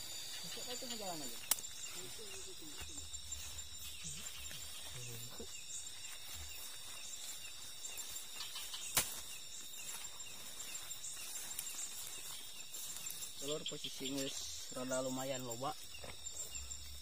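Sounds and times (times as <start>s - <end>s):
insect chorus trilling: 0.0s - 17.0s.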